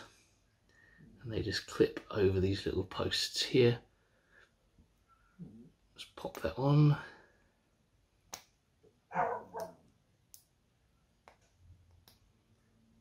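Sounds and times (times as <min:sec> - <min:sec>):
dog barking: 0:09.1 - 0:09.8.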